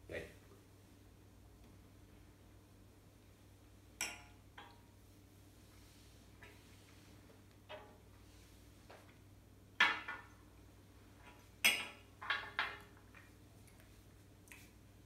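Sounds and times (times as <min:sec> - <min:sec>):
glass clinking on glass table: 0:04.0 - 0:04.8, 0:11.6 - 0:12.8.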